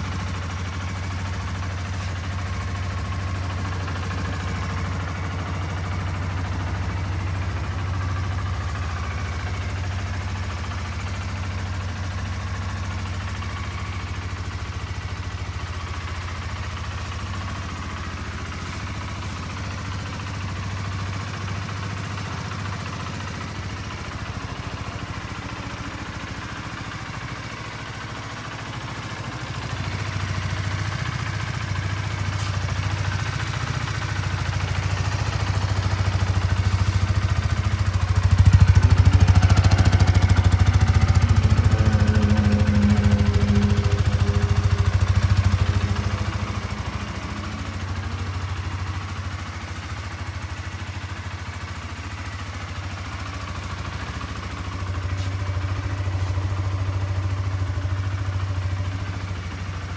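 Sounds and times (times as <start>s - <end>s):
motorcycle engine idling: 0.0s - 59.9s.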